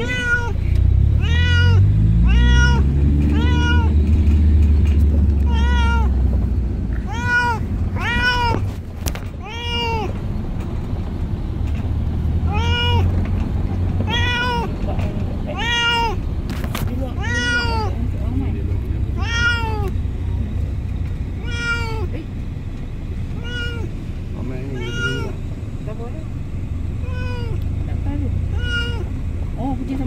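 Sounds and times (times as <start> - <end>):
cat meowing: 0.0 - 0.6, 1.2 - 4.0, 5.4 - 6.2, 7.0 - 8.7, 9.4 - 10.2, 12.5 - 13.1, 14.0 - 14.8, 15.5 - 16.2, 17.1 - 18.1, 19.1 - 20.0, 21.3 - 22.1, 23.3 - 24.0, 24.7 - 25.4, 27.0 - 27.6, 28.5 - 29.1
car cabin rumble: 0.0 - 30.0.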